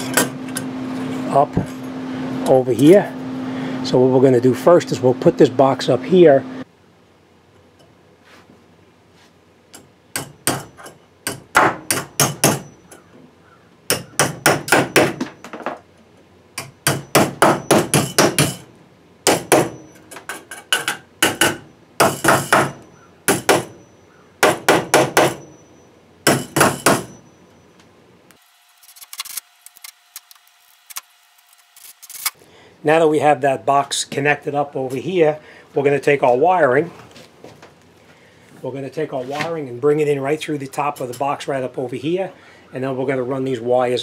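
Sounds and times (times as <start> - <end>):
hammer striking metal box: 10.2 - 12.7, 16.6 - 18.6, 20.7 - 23.8, 24.4 - 25.5, 26.3 - 27.2.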